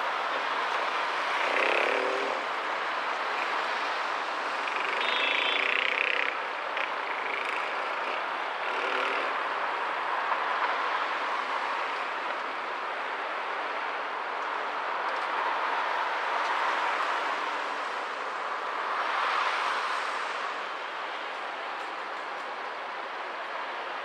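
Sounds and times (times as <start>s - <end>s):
cars driving past: 0.0s - 23.9s.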